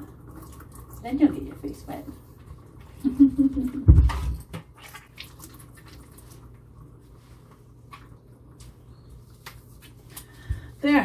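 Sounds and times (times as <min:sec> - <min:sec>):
water dripping and squishing: 0:00.0 - 0:10.7.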